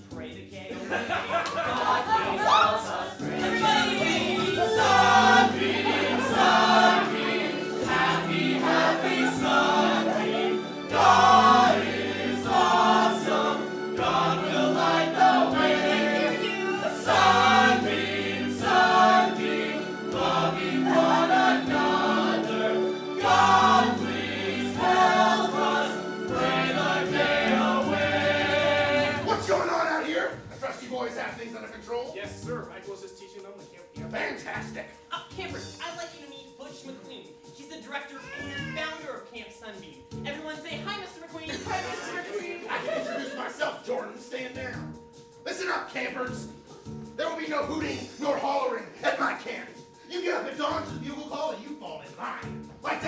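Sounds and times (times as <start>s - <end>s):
musical accompaniment with bass line: 0.0s - 37.6s, 38.2s - 39.1s, 44.2s - 48.9s, 50.6s - 53.0s
group singing chant-like song: 0.7s - 30.4s, 41.5s - 44.0s, 52.8s - 53.0s.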